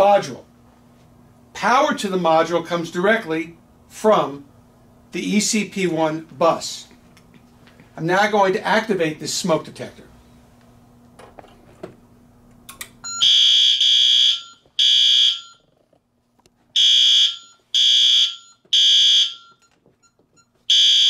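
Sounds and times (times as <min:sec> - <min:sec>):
high-pitched fire alarm beeps: 0:13.0 - 0:15.6, 0:16.8 - 0:21.0.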